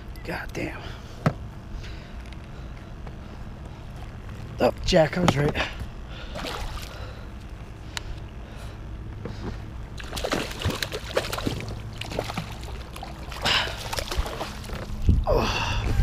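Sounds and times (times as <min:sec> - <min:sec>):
fish thrashing and splashing: 0:06.2 - 0:07.0, 0:10.0 - 0:15.1.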